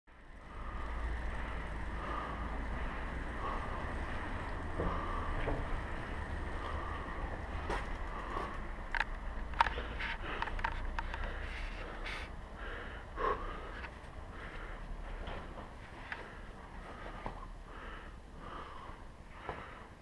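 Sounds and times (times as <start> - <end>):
bicycle rattling over cobblestones: 0.2 - 12.7.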